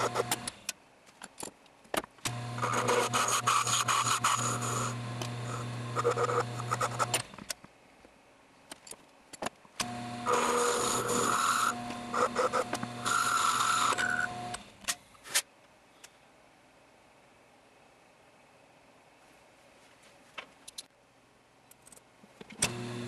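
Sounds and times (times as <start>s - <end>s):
cutting tool scraping brass rod: 2.6s - 7.2s, 10.2s - 14.3s
lathe motor hum: 9.8s - 14.6s.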